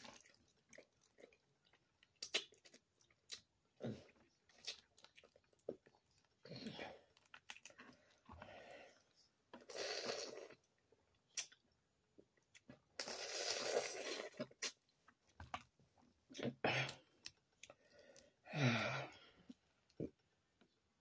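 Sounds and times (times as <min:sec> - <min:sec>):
sucking and slurping: 0:00.0 - 0:11.7, 0:12.6 - 0:14.9.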